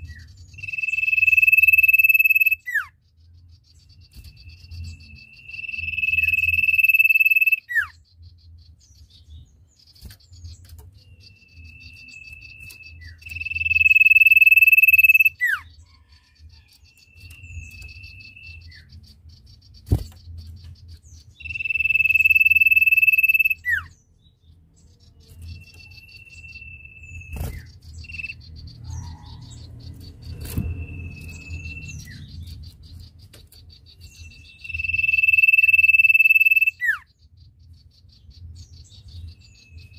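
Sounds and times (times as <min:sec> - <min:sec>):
insect trill: 0:00.5 - 0:02.7, 0:04.0 - 0:07.9, 0:11.0 - 0:18.8, 0:21.3 - 0:23.8, 0:34.1 - 0:37.0.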